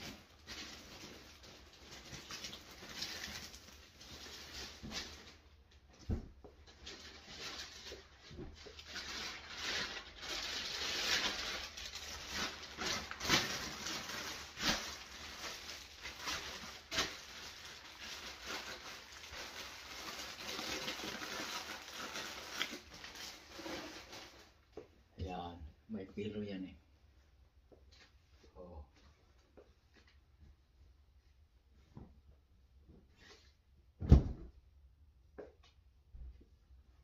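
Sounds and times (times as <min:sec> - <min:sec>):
plastic packaging crinkling: 0:00.0 - 0:05.4, 0:06.6 - 0:24.6
short thuds: 0:34.0 - 0:34.6.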